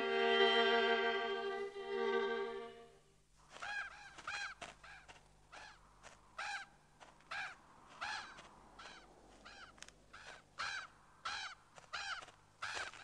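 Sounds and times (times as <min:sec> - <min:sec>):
crow cawing: 0:03.5 - 0:13.0.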